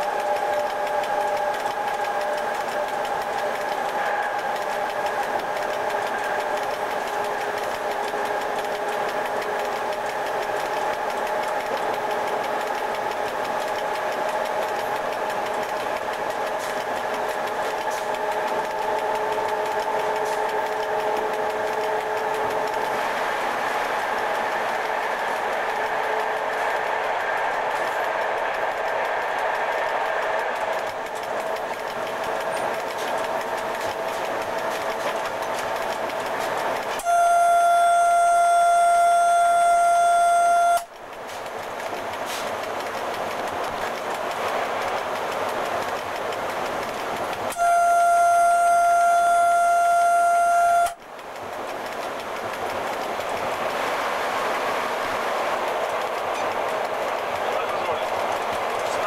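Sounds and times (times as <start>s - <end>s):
whining tones: 0.0s - 41.0s, 47.5s - 51.0s
locomotive mechanical hum: 0.0s - 59.0s
train running on track: 0.0s - 59.0s.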